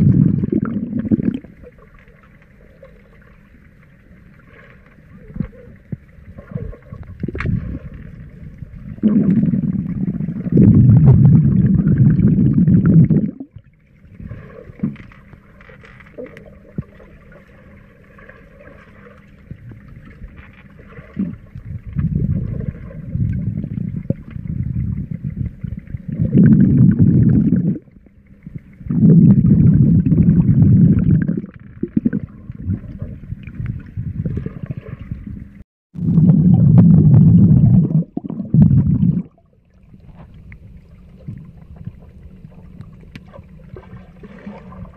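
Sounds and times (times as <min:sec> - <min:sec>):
underwater water rumbling and gurgling: 0:00.0 - 0:44.9.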